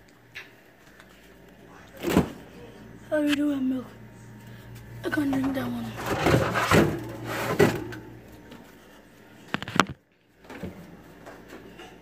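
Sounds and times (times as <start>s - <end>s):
things clattering in refrigerator: 1.9s - 2.6s, 5.0s - 8.8s, 9.5s - 12.0s.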